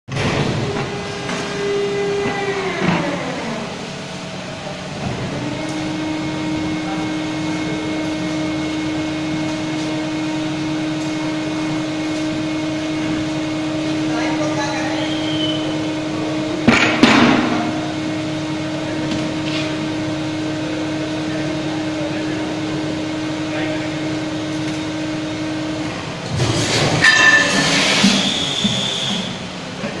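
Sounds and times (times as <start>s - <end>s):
machine hum: 0.1s - 30.0s
machine whine: 0.1s - 30.0s
rush of hydraulic noise: 26.4s - 29.6s.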